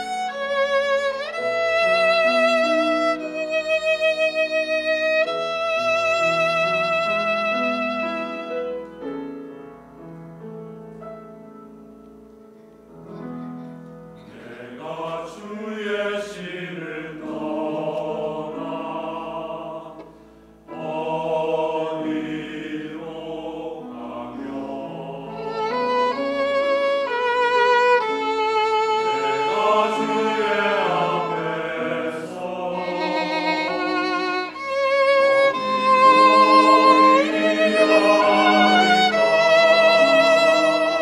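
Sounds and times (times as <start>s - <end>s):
violin playing with vibrato: 0.0s - 8.8s, 24.8s - 41.0s
choir singing slow anthem: 14.2s - 26.4s, 29.1s - 34.8s, 35.4s - 40.8s.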